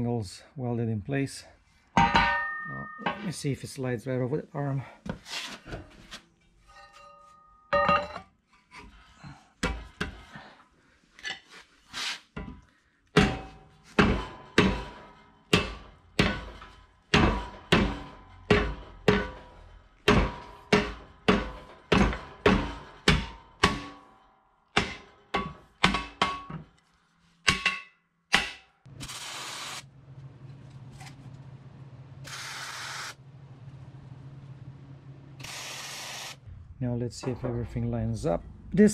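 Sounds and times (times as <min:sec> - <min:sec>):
metal-on-metal knocks: 0:02.0 - 0:03.3, 0:06.8 - 0:08.2, 0:13.2 - 0:26.8, 0:27.4 - 0:28.8
arc welding hum and hiss: 0:29.0 - 0:29.9, 0:32.2 - 0:33.2, 0:35.4 - 0:36.4.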